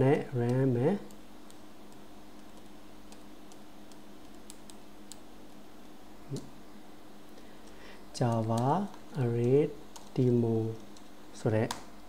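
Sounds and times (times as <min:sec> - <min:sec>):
steady low hum: 0:00.0 - 0:12.0
computer keyboard keystrokes: 0:00.4 - 0:05.3, 0:07.6 - 0:11.1.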